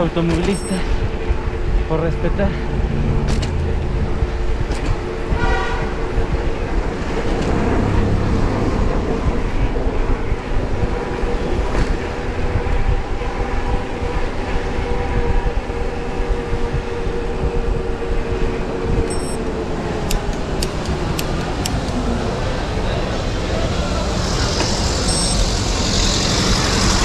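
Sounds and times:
traffic rumble: 0:00.0 - 0:27.0
vehicle engine drone: 0:00.0 - 0:27.0
short high beep: 0:19.1 - 0:19.4, 0:25.1 - 0:25.4.

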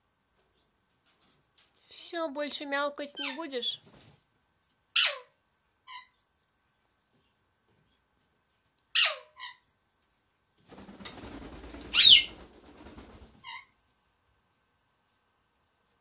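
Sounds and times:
parakeet squawking: 0:03.1 - 0:03.8, 0:05.0 - 0:05.3, 0:05.9 - 0:06.2, 0:08.9 - 0:09.6, 0:11.9 - 0:12.3, 0:13.4 - 0:13.7.

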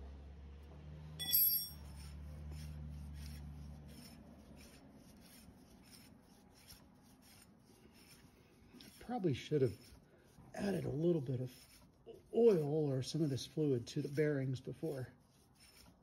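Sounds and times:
metallic clink: 0:01.2 - 0:02.0
hub turning with rasping rub: 0:01.8 - 0:16.0.

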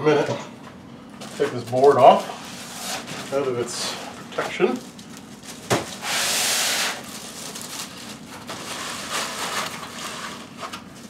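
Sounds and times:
foam packing scraping: 0:01.3 - 0:04.0, 0:05.6 - 0:11.0
plastic wrap crinkling: 0:07.0 - 0:11.0.

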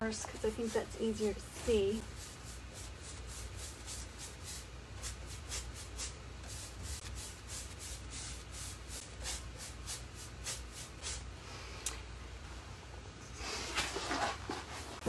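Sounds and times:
paintbrush scrubbing paint onto wood: 0:00.2 - 0:11.2.

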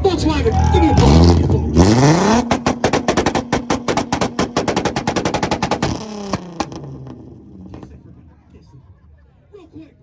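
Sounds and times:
engine on rev limiter: 0:00.5 - 0:08.2
exhaust pops and bangs: 0:01.0 - 0:08.0.

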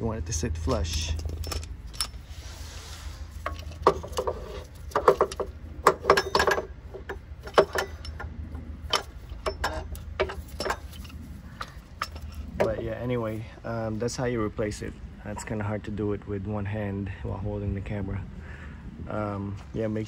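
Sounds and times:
low hum: 0:00.0 - 0:20.0
metal clinks and knocks: 0:00.6 - 0:02.3, 0:03.2 - 0:13.2
wrench tapping and ringing: 0:04.9 - 0:08.2.

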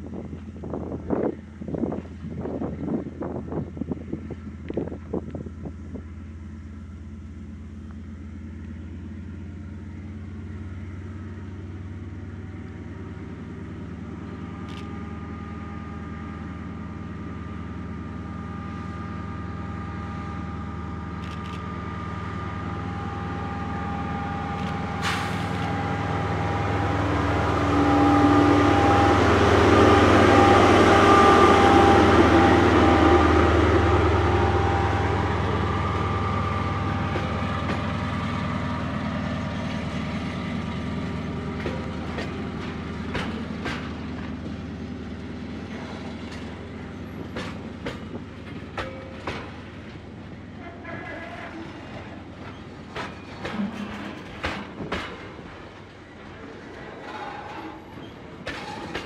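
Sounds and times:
locomotive engine drone: 0:00.0 - 0:59.0.

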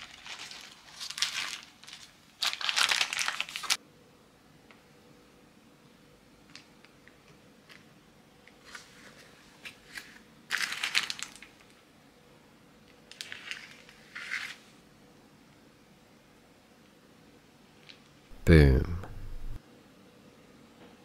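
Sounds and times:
parchment paper crinkling: 0:00.0 - 0:03.8, 0:10.5 - 0:11.6.

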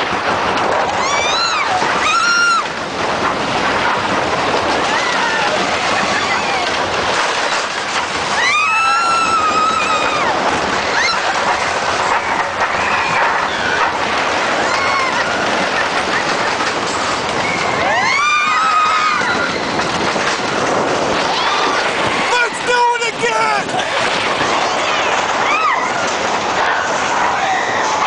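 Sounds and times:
roller coaster rattling on track: 0:00.0 - 0:28.0
riders screaming: 0:00.9 - 0:02.8, 0:04.8 - 0:06.9, 0:08.2 - 0:16.3, 0:17.4 - 0:19.8, 0:26.7 - 0:28.0.

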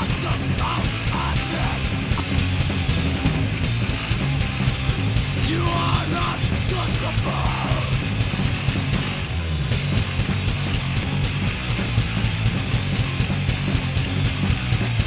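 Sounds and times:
person singing: 0:00.0 - 0:01.8, 0:05.4 - 0:08.0
punk rock music: 0:00.0 - 0:15.0.

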